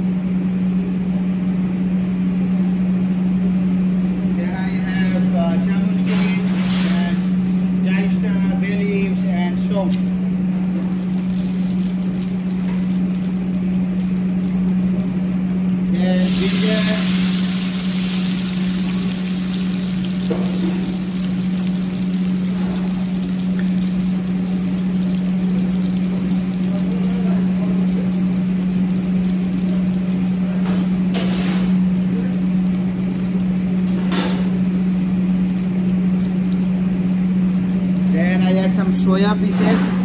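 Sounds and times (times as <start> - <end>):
spices sizzling in hot oil: 8.8 - 39.9
low hum: 9.1 - 38.1
loud hisses: 16.1 - 21.0.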